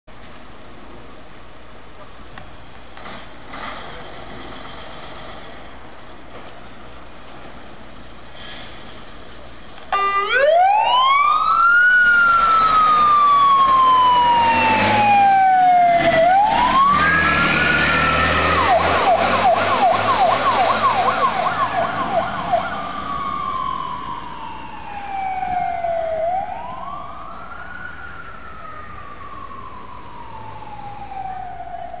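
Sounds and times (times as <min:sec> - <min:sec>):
fire engine engine noise: 0:00.1 - 0:32.0
fire engine siren wailing: 0:09.8 - 0:32.0
siren yelp: 0:09.9 - 0:32.0.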